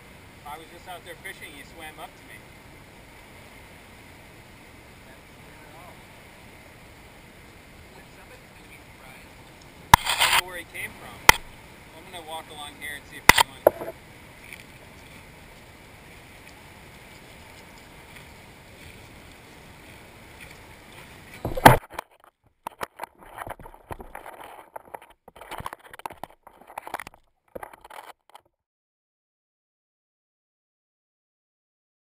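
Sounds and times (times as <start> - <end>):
wind: 0.0 - 28.6
small waves washing: 0.8 - 22.0
sharp knock: 21.5 - 21.8.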